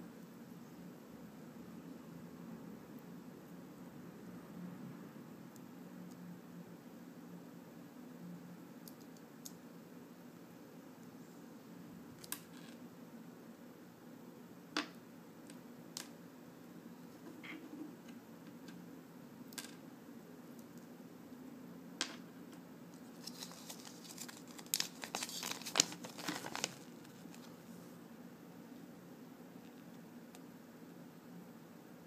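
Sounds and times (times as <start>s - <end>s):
paper crinkling and rustling: 23.0s - 27.6s.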